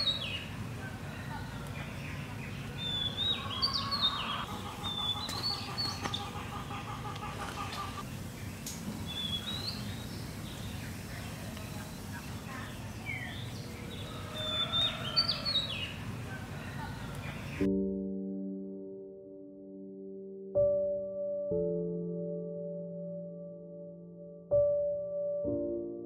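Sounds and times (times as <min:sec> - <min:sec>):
birds chirping: 0:00.0 - 0:17.7.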